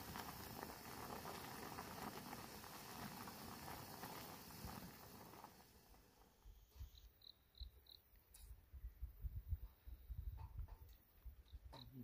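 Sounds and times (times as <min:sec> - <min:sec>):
broth bubbling and crackling: 0:00.0 - 0:06.4.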